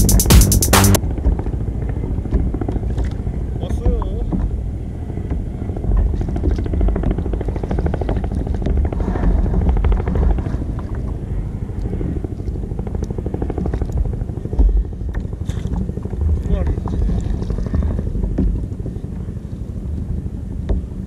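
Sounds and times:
wind on microphone: 0:04.2 - 0:21.0.

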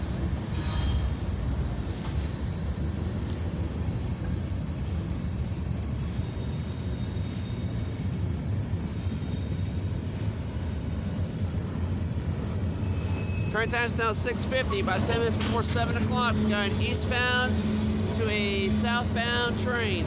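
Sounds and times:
train wheels rumbling on rails: 0:00.0 - 0:20.0
high wheel squeal: 0:00.5 - 0:01.2, 0:06.0 - 0:08.1, 0:12.8 - 0:14.6, 0:15.2 - 0:20.0.

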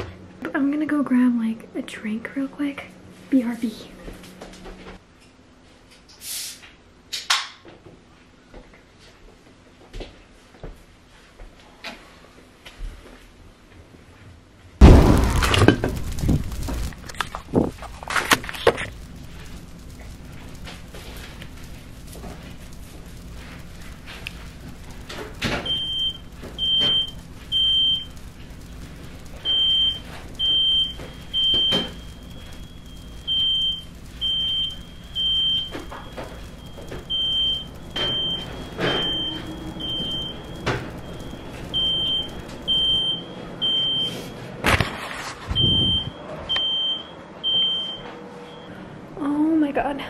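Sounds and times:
loud bang: 0:14.8 - 0:17.7
smoke alarm beeping: 0:18.8 - 0:44.3, 0:45.6 - 0:48.7.

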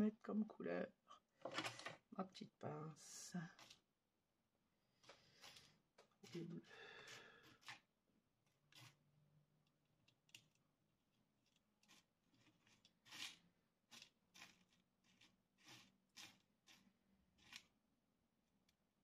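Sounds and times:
plastic rhinestones clicking: 0:11.4 - 0:17.7.

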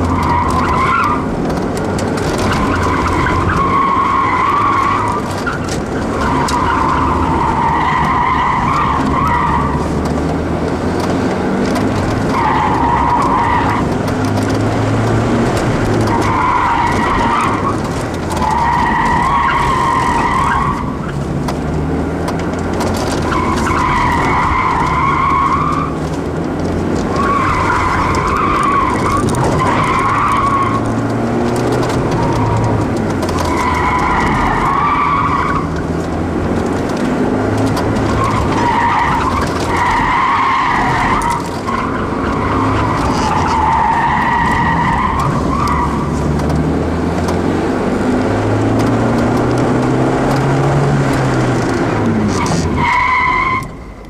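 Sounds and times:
car engine revving: 0:00.0 - 0:53.8
tyres squealing: 0:02.1 - 0:10.0, 0:15.3 - 0:21.2, 0:22.7 - 0:26.0, 0:26.8 - 0:46.7, 0:48.9 - 0:54.0.

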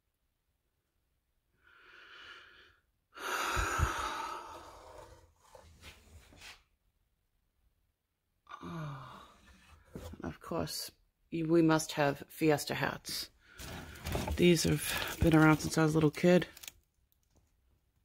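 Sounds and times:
woman sighing: 0:03.2 - 0:04.8, 0:08.5 - 0:09.5
woman's voice: 0:10.2 - 0:13.3, 0:14.2 - 0:16.5
rustling of boxes being handled: 0:13.6 - 0:16.7.

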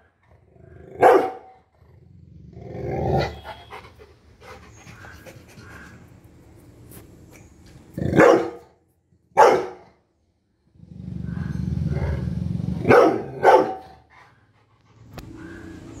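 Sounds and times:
dog barking: 0:01.0 - 0:01.6, 0:08.2 - 0:08.7, 0:09.4 - 0:09.9, 0:12.8 - 0:14.0
dog growling low: 0:10.8 - 0:12.9.

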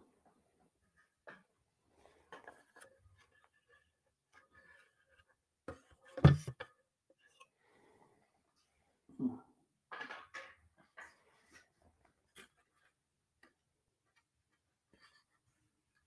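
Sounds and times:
handling rustles and taps: 0:02.3 - 0:07.5.

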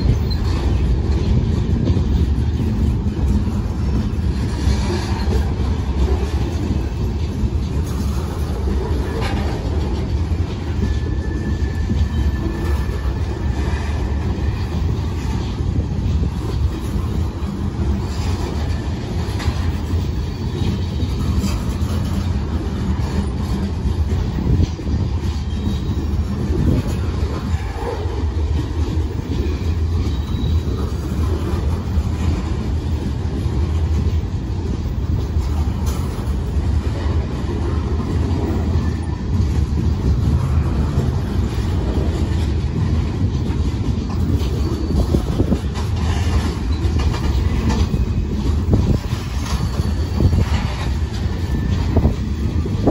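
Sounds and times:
train wheels rumbling on rails: 0:00.0 - 0:52.9
wheels clicking over rail joints: 0:00.0 - 0:52.9.

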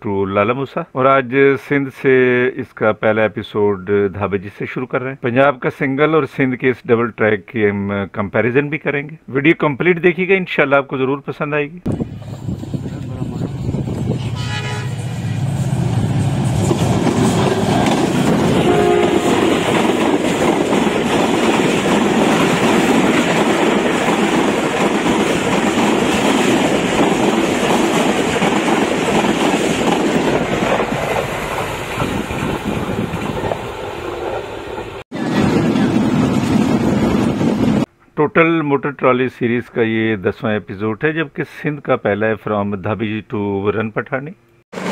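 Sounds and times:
train wheels clattering over rails: 0:15.8 - 0:34.3.

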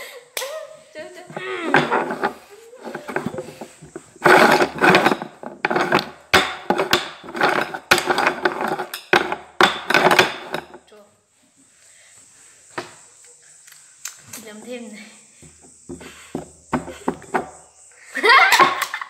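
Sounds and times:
bowls scraping on tabletop: 0:01.3 - 0:10.8.

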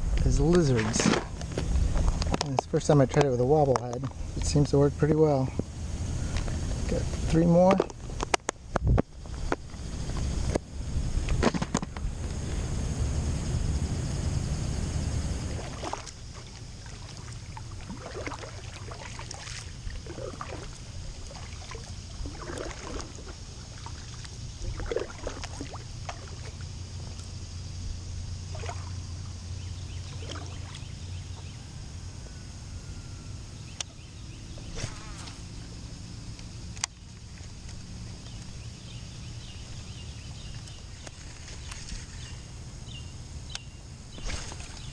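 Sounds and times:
paddle splashing in water: 0:15.4 - 0:26.8, 0:28.5 - 0:29.0, 0:30.1 - 0:31.5, 0:44.1 - 0:44.9.

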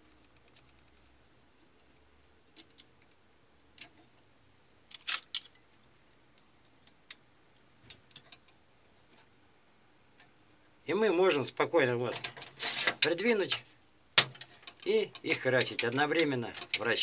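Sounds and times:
plastic lures clicking on metal rack: 0:14.2 - 0:17.0.

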